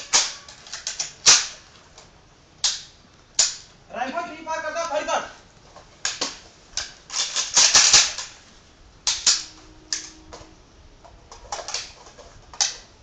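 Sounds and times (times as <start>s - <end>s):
rifle parts clicking and clacking: 0.0s - 3.7s, 6.0s - 8.4s, 9.0s - 10.5s, 11.3s - 12.9s.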